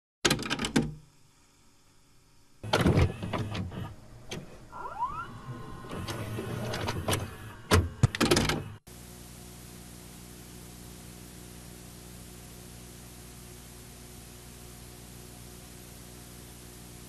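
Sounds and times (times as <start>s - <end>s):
cassette player clacks and rattles: 0.3s - 0.9s, 6.7s - 8.7s
motor whining: 2.6s - 8.8s.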